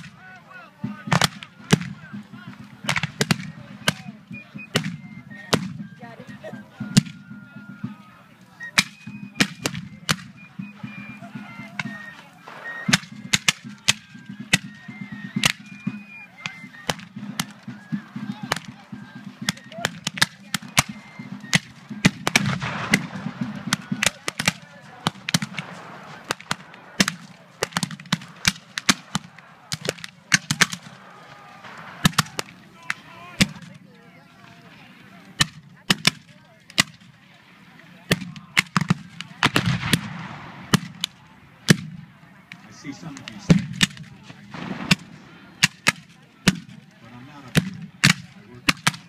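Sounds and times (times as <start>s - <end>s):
musket shots and volleys: 2.8s - 5.7s, 11.8s - 14.8s, 15.4s - 33.7s, 38.1s - 49.0s.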